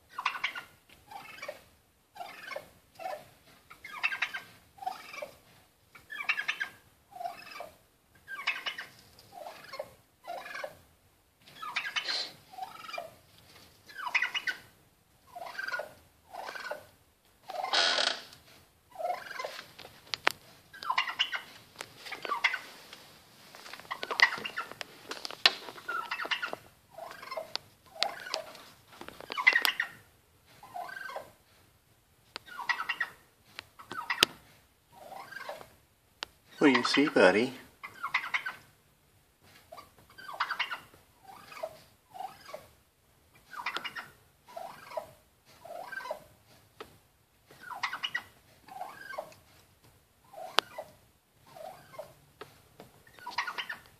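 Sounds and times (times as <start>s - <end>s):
turkey calling: 0.1s - 10.8s, 11.5s - 13.2s, 13.9s - 19.7s, 20.7s - 22.8s, 23.9s - 24.8s, 25.7s - 31.4s, 32.4s - 33.2s, 33.8s - 35.8s, 36.5s - 38.7s, 39.7s - 42.8s, 43.4s - 46.3s, 47.5s - 49.5s, 50.2s - 52.2s, 53.0s - 53.9s.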